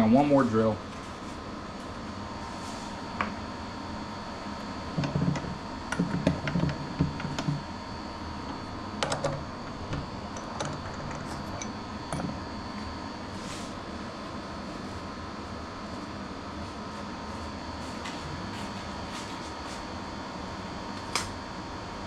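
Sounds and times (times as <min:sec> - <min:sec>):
steady machine hum: 0:00.0 - 0:22.0.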